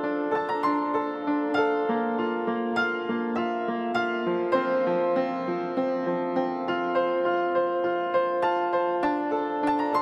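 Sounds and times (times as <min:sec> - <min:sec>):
soft keyboard melody: 0:00.0 - 0:10.0.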